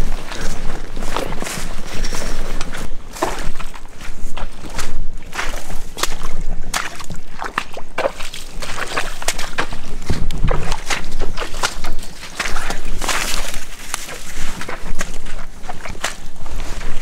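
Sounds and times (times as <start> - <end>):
boots squelching through wet ground: 0.0 - 17.0
grass and twigs brushing: 0.0 - 17.0.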